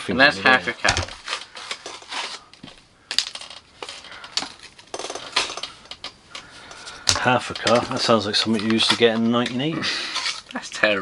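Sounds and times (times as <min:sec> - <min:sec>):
crinkling rustle: 0:00.7 - 0:04.9.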